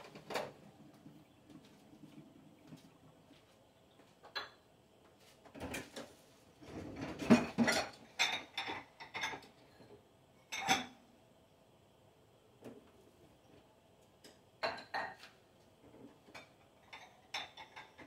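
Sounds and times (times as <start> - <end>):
dishes and utensils clinking: 4.2 - 4.6, 5.5 - 9.6, 10.4 - 11.0, 14.2 - 15.4, 16.2 - 18.0.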